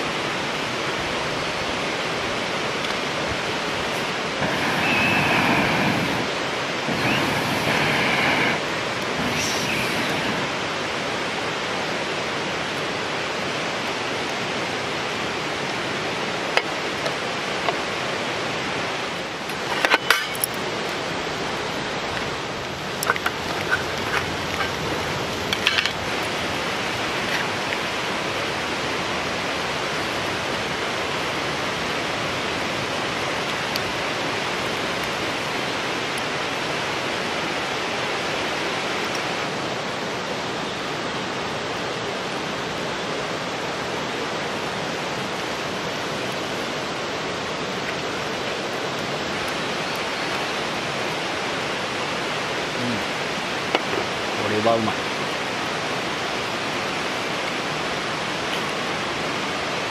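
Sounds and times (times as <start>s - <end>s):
running water: 0.0s - 59.9s
utensils clinking: 19.6s - 20.6s.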